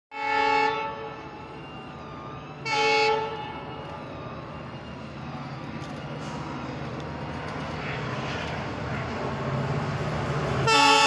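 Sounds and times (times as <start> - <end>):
locomotive air horn blast: 0.1 - 1.2, 2.6 - 3.4, 10.7 - 11.0
train rumbling: 0.1 - 11.0.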